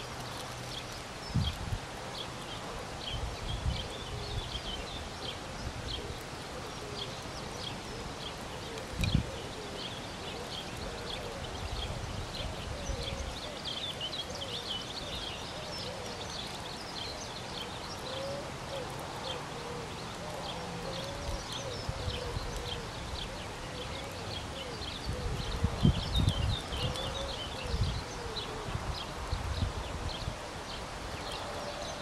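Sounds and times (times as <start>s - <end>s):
small birds chirping: 0.0s - 32.0s
wind buffeting microphone: 0.7s - 2.0s, 3.0s - 6.2s, 7.8s - 10.2s, 21.1s - 31.5s.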